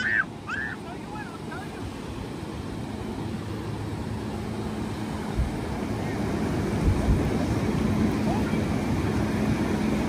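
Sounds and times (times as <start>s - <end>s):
ocean surf breaking: 0.0s - 10.0s
wind buffeting microphone: 4.9s - 10.0s.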